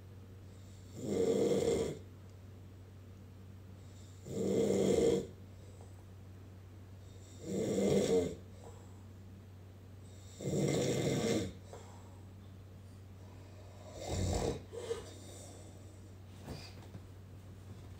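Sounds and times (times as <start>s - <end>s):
steady low hum: 0.0s - 17.9s
man snoring: 0.9s - 2.0s, 4.0s - 5.4s, 7.2s - 8.4s, 10.1s - 11.6s, 13.7s - 15.4s.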